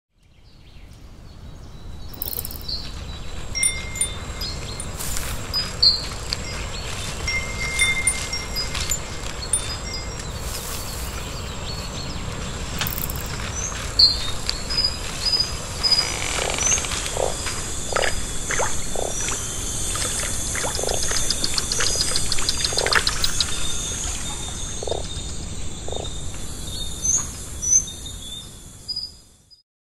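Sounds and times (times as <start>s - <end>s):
steady background hiss: 1.0s - 29.5s
ticking insect trill: 2.1s - 2.8s, 3.5s - 11.1s, 12.7s - 27.9s
high bird chirps: 2.1s - 2.9s, 3.6s - 11.1s, 12.8s - 27.9s.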